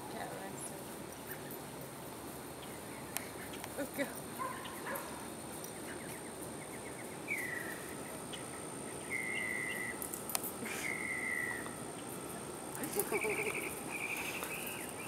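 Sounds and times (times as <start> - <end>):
high insect drone: 0.4 - 15.0
high whistled bird calls: 5.8 - 10.0, 10.7 - 11.7, 13.1 - 15.0.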